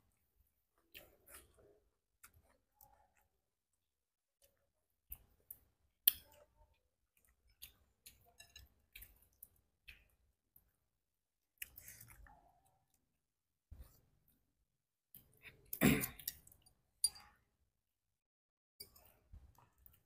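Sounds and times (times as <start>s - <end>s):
chewing shrimp: 0.8s - 10.8s, 11.5s - 13.1s.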